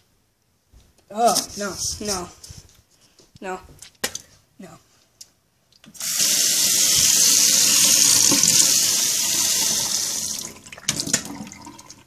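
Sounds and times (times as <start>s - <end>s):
faucet running into sink: 6.0s - 12.0s.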